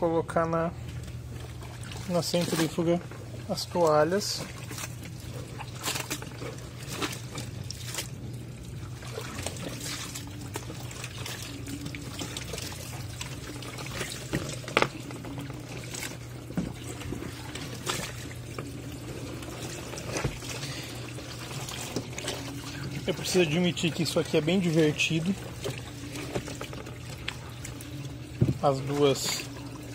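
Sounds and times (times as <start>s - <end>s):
low steady hum: 0.0s - 29.9s
water pouring and splashing: 0.8s - 29.9s.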